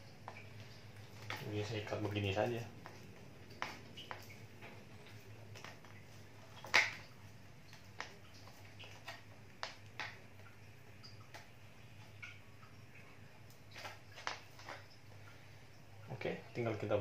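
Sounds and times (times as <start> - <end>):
plastic bottle and hose clicks: 6.6 - 7.1.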